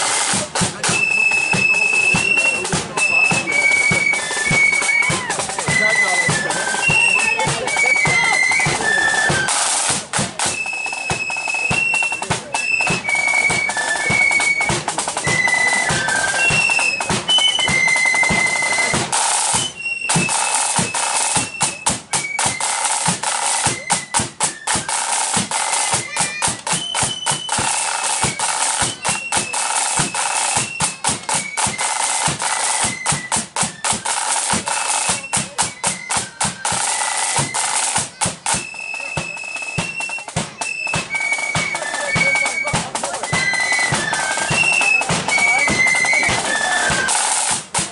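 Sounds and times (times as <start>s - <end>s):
flutes playing melody: 0.0s - 47.9s
snare drumming: 0.0s - 47.9s.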